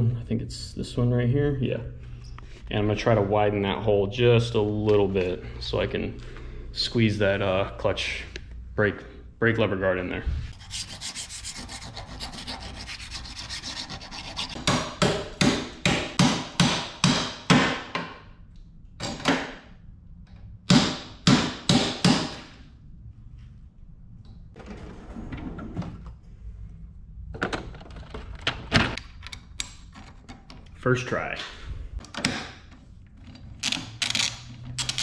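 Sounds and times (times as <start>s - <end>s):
file rasping inside metal tube: 10.6s - 14.6s.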